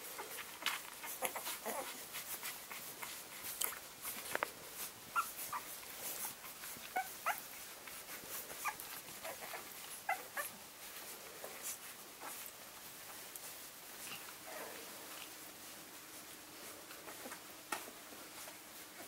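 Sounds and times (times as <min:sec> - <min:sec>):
puppies squeaking and whimpering: 0:00.1 - 0:12.6.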